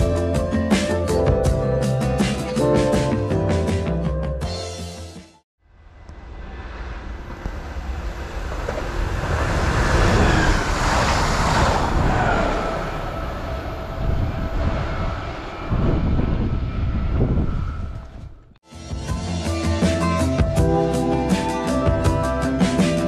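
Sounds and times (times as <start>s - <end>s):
electric train passing: 5.7s - 18.5s
low rumbling gusts: 5.7s - 18.6s.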